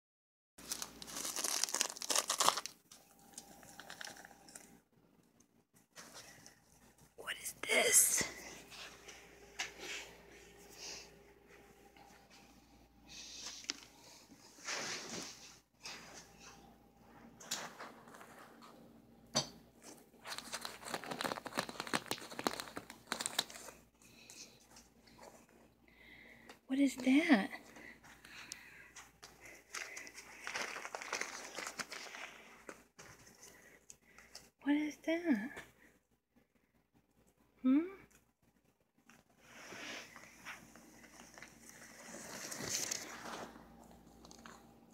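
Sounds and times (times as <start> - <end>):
plastic tube crinkling: 0.6 - 4.8, 19.8 - 25.3, 29.0 - 34.5, 40.2 - 44.7.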